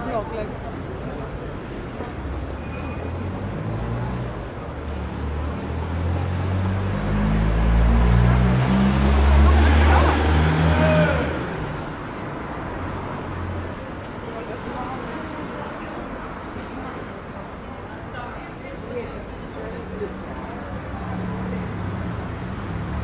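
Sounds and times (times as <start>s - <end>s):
motor vehicle passing: 5.2s - 12.2s.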